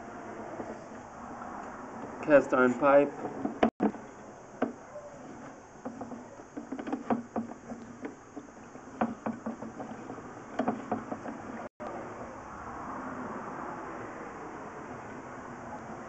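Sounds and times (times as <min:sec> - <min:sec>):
push cable knocking in pipe: 0:05.8 - 0:11.7.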